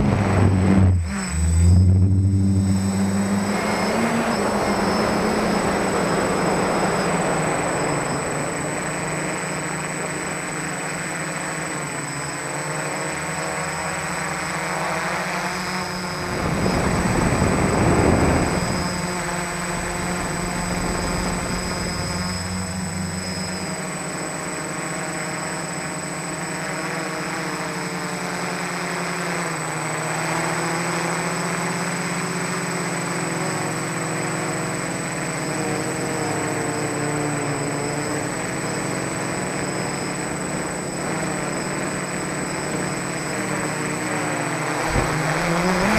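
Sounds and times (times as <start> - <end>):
rush of wind noise: 0.0 - 9.8, 15.8 - 24.7, 44.7 - 45.9
drone motors humming: 0.0 - 45.9.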